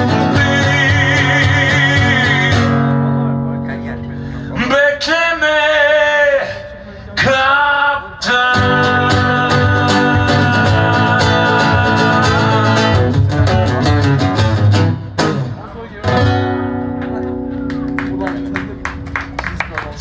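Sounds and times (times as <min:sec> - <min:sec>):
man singing: 0:00.0 - 0:03.2, 0:04.5 - 0:13.8
guitar strumming: 0:00.0 - 0:04.8, 0:08.5 - 0:19.4.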